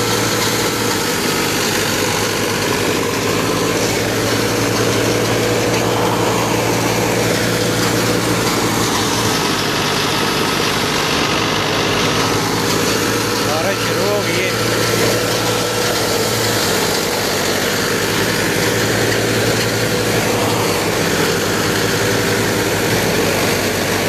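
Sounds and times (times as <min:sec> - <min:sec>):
thresher rushing rattle: 0:00.0 - 0:24.0
tractor diesel engine hum: 0:00.0 - 0:24.0.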